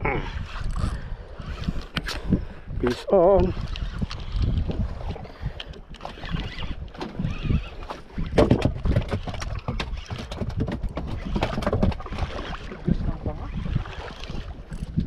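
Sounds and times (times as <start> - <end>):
wind buffeting microphone: 0.0 - 15.0
water sloshing against boat hull: 0.4 - 15.0.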